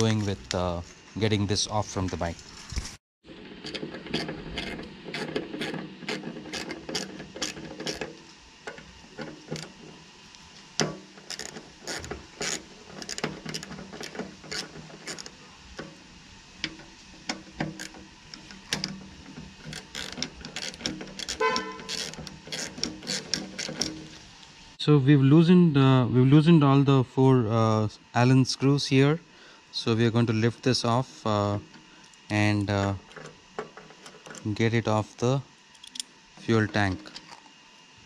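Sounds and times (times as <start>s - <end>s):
ratchet clicking: 3.6s - 10.0s, 10.8s - 24.3s.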